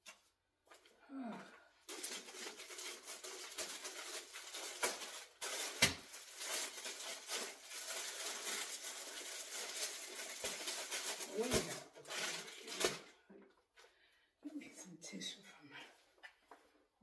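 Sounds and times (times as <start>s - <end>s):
packaging rustling and crinkling: 1.8s - 13.2s.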